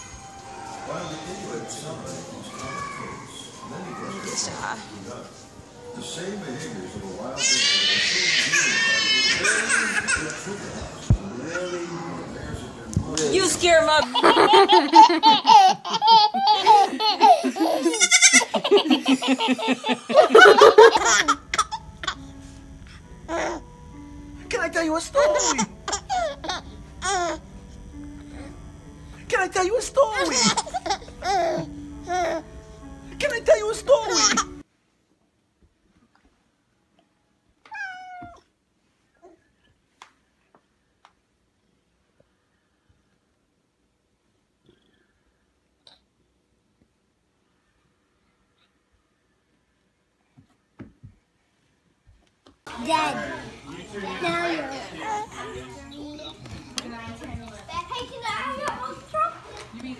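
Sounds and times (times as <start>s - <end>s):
toddler laughing: 8.2s - 10.4s, 14.0s - 22.2s, 25.2s - 27.4s, 30.1s - 32.4s, 33.9s - 34.6s
cat meowing: 37.7s - 38.4s.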